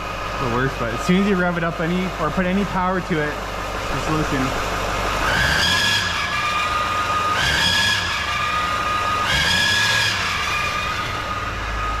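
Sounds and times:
engine revving: 0.0s - 12.0s
high engine squeal: 3.9s - 12.0s.

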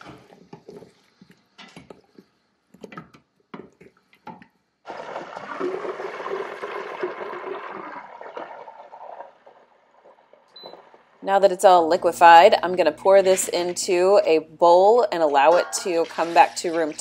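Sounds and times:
fat bubbling in pot: 3.5s - 11.2s
wooden spoon scraping metal pot: 13.0s - 14.2s, 15.0s - 17.0s.

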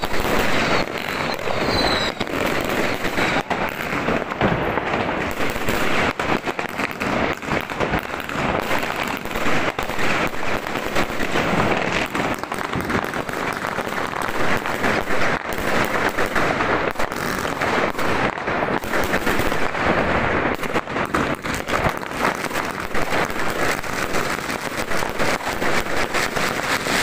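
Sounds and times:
fireworks bangs and crackles: 0.0s - 27.0s.

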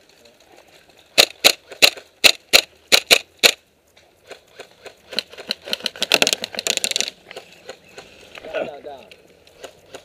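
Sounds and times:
airsoft rifle shots: 1.2s - 3.6s
fast clatter of clicks and rattles: 5.1s - 7.1s.

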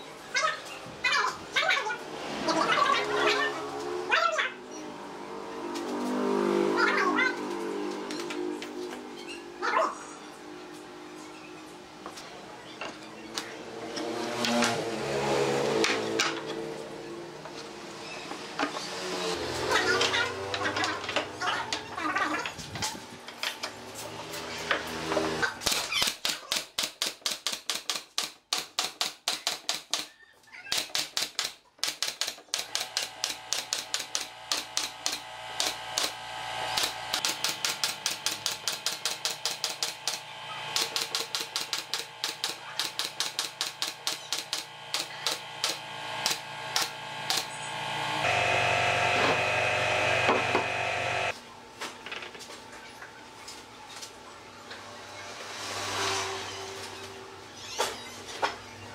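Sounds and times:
nail gun firing into wood: 25.6s - 30.1s, 30.7s - 36.2s, 36.8s - 47.5s
steady mechanical hum: 32.5s - 55.3s.

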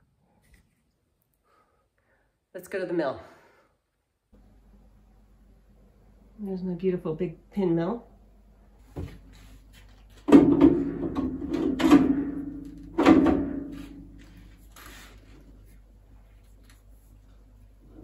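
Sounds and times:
metal door clanking shut: 10.3s - 13.7s.

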